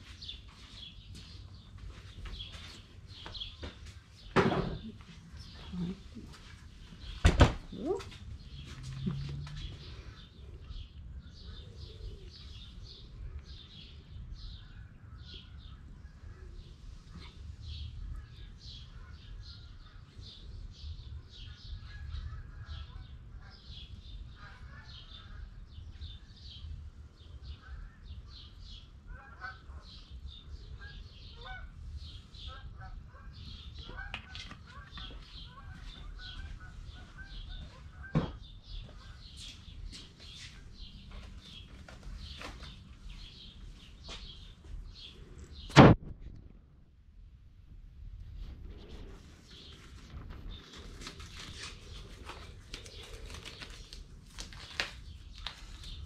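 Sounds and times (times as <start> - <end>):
small birds chirping: 0.0 - 45.8, 48.7 - 56.0
sharp knock: 45.7 - 46.3.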